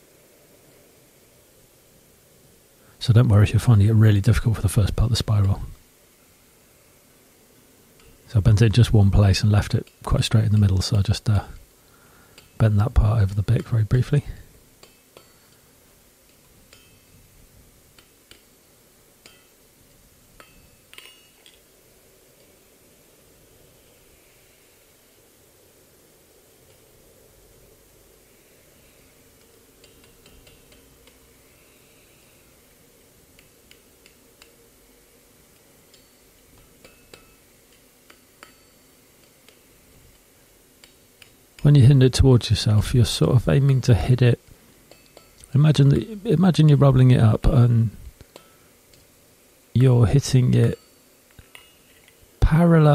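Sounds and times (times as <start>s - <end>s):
hammer taps on hot steel: 8.0s - 8.2s, 12.4s - 12.6s, 14.8s - 15.6s, 16.3s - 17.1s, 19.2s - 19.5s, 29.4s - 31.2s, 35.6s - 40.2s
metal bar clinking against anvil: 12.4s - 12.6s, 16.7s - 17.1s, 19.2s - 19.6s, 20.4s - 21.6s, 35.9s - 39.4s, 44.9s - 45.4s, 50.7s - 51.9s.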